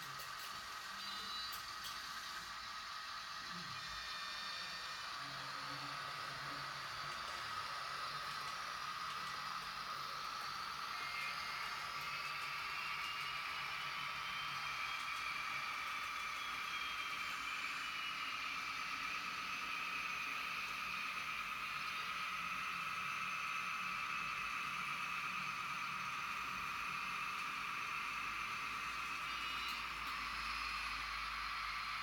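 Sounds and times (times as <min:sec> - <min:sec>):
electric motor whine: 0:00.1 - 0:32.0.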